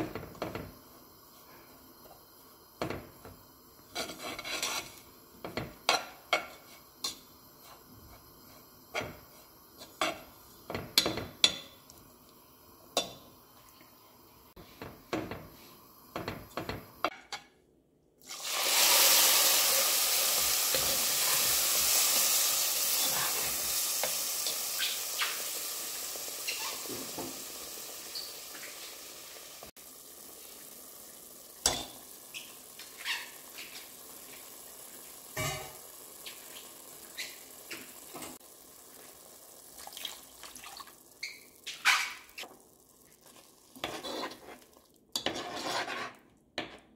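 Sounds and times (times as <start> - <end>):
water sizzling on hot pan: 0.0 - 17.1, 18.2 - 46.2
spoon scraping ground nuts in pot: 3.9 - 5.0, 43.8 - 46.9.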